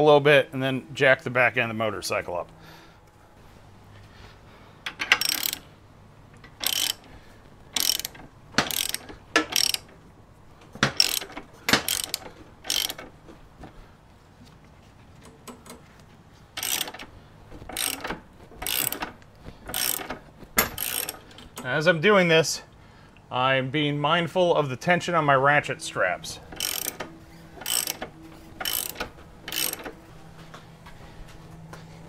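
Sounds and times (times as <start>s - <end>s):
ratchet wrench clicking: 4.8s - 5.7s, 6.4s - 7.1s, 7.7s - 9.9s, 10.8s - 13.1s, 16.6s - 17.1s, 17.7s - 21.7s, 26.5s - 30.0s.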